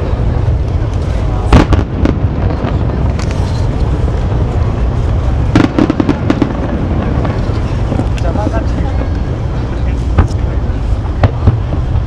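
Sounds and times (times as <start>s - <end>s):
sharp bangs and crackles: 0.0s - 12.0s
steady low rumble: 0.0s - 12.0s
firework shells bursting: 0.6s - 9.2s.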